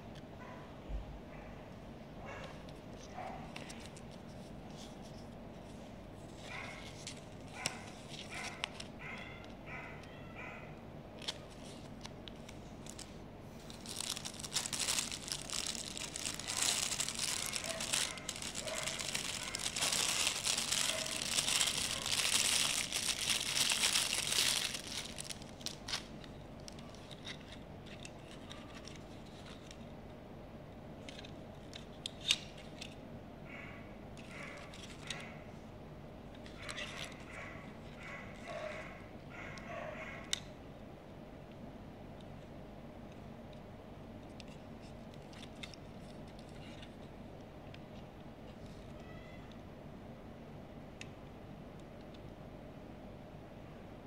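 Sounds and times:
plastic packaging crinkling: 11.2 - 29.8.

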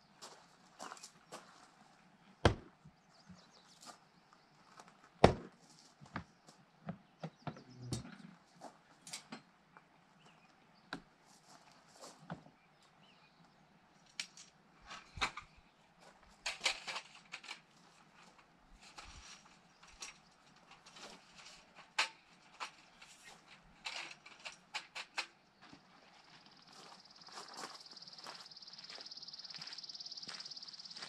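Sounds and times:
footsteps on gravel: 0.2 - 1.8, 25.6 - 31.0.

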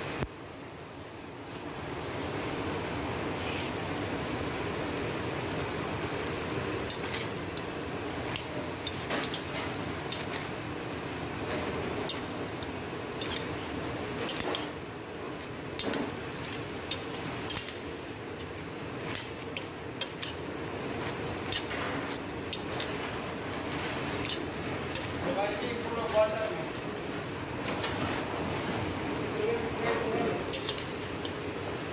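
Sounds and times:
cooking hiss: 0.0 - 31.9.

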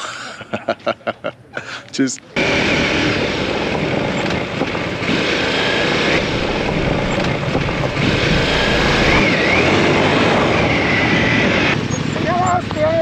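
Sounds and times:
motorcycle engine running: 5.4 - 9.6.

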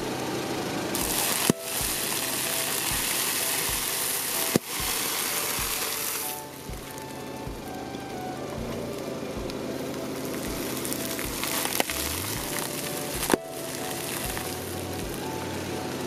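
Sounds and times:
music with steady beat: 0.0 - 16.0
sharp snaps: 1.0 - 7.7.

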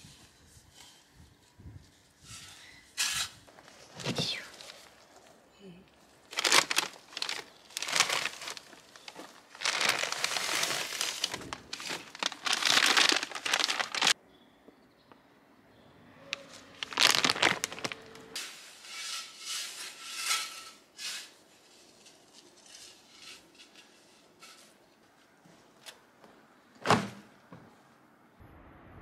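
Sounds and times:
wrapper crinkling: 6.2 - 14.2, 16.3 - 18.3.

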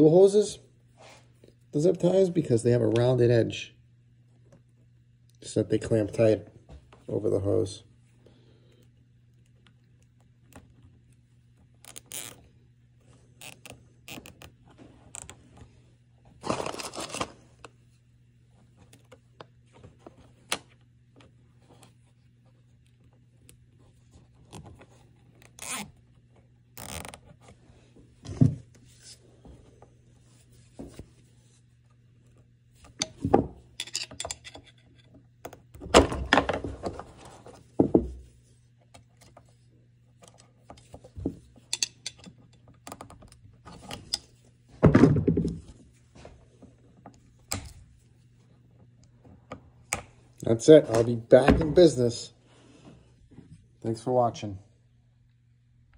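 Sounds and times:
plastic rustling and scraping: 16.3 - 17.7.

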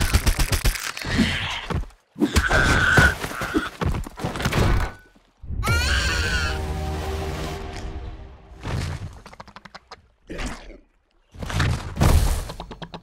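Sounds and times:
rising pitched cry: 5.6 - 6.7.

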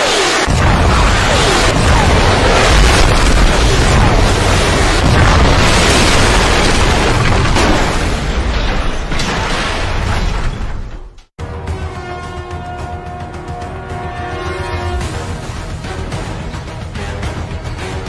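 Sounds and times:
heavy rumble of blasts: 0.4 - 8.5
sharp explosion bangs: 0.4 - 10.2.

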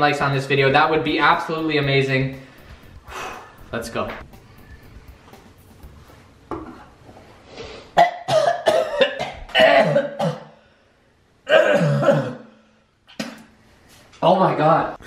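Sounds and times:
man coughing and gagging: 8.0 - 10.6, 11.5 - 12.5.

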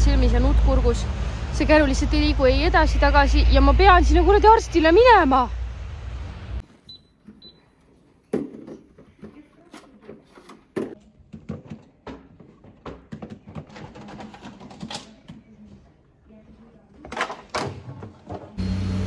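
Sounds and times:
faint short beeps: 6.8 - 7.7
plastic toys clacking and knocking: 8.3 - 15.5, 17.0 - 18.6.

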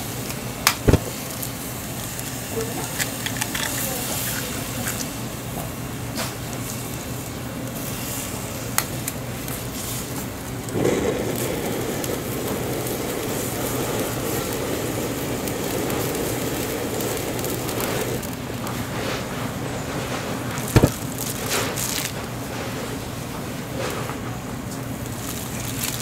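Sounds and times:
gas burner flame rushing: 0.0 - 26.0
broth bubbling at a boil: 8.4 - 22.7, 24.8 - 26.0.

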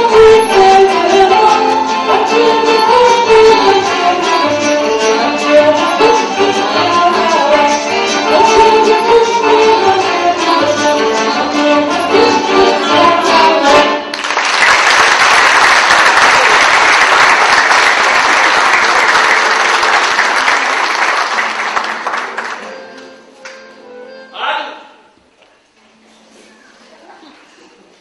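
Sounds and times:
woman singing folk song: 0.0 - 14.0
accordion: 0.0 - 14.2, 22.3 - 24.4
audience applause: 14.1 - 22.7.

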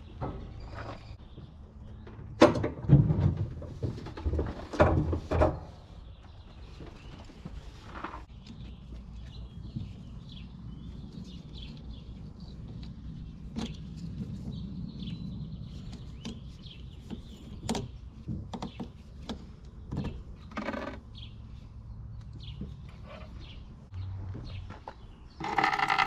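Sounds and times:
small birds chirping: 5.8 - 26.0.

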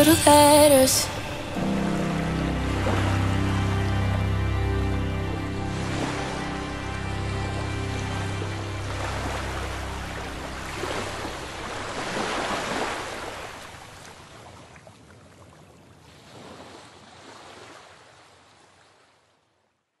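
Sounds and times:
song ending: 0.0 - 9.6
surf washing onto beach: 1.4 - 14.2.

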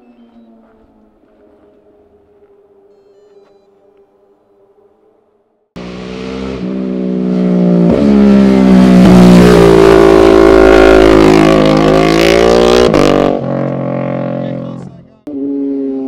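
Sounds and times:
motorcycle engines revving: 5.8 - 16.0.

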